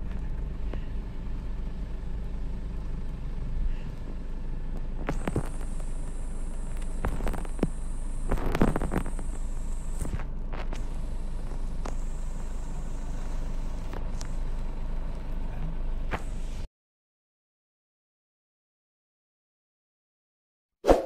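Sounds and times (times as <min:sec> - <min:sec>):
traffic rumble from inside a car: 0:00.0 - 0:16.7.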